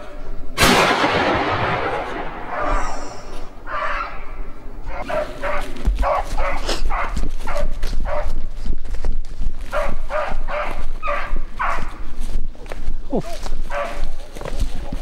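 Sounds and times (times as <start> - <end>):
dog barking: 4.9 - 8.4, 9.7 - 12.0, 13.7 - 14.1.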